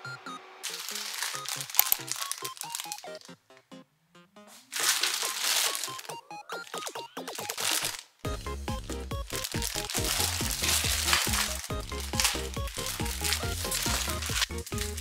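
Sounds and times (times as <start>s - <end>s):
plastic bags crinkling: 0.6s - 3.5s, 4.5s - 15.0s
background music with plucked notes: 8.3s - 15.0s.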